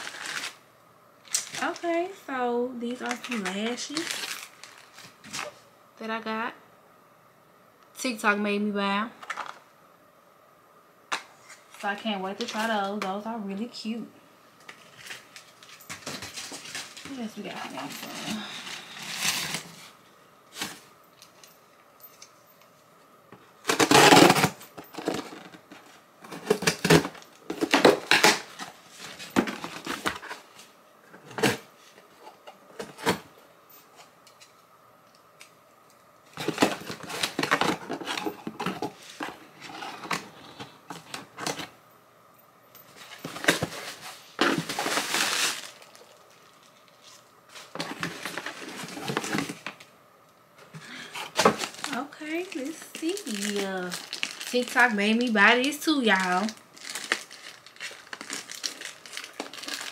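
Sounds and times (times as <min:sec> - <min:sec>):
cardboard flaps tearing and rustling: 0:00.0 - 0:00.6, 0:18.1 - 0:19.9, 0:43.0 - 0:46.1, 0:56.1 - 0:59.9
packing tape tearing: 0:00.0 - 0:00.6, 0:01.2 - 0:01.9, 0:02.9 - 0:05.6, 0:17.8 - 0:19.9, 0:23.6 - 0:30.5, 0:36.3 - 0:41.7, 0:43.0 - 0:49.9, 0:51.2 - 0:55.3, 0:56.1 - 0:59.9.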